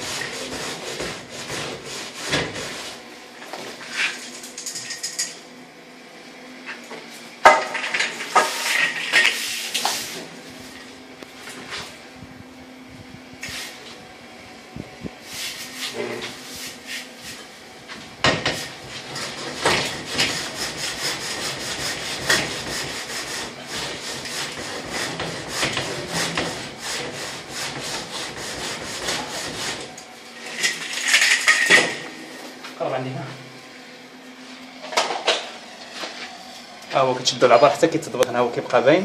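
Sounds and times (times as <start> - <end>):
straightedge scraping cement render: 0.0 - 3.0, 19.0 - 31.8.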